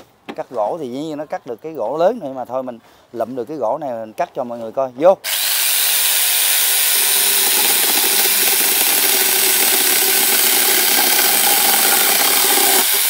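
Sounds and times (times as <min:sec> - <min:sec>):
electric chainsaw cutting wood: 0:05.3 - 0:13.0.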